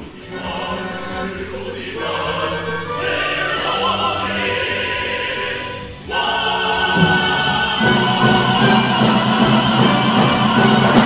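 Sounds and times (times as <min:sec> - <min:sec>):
opera singers singing: 0:00.0 - 0:11.0
orchestra playing: 0:00.0 - 0:11.0.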